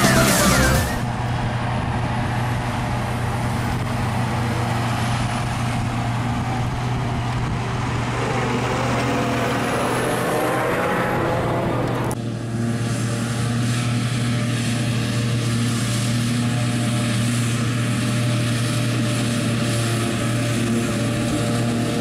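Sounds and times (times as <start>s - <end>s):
electronic music: 0.0s - 1.1s
tractor engine passing by: 0.0s - 22.0s.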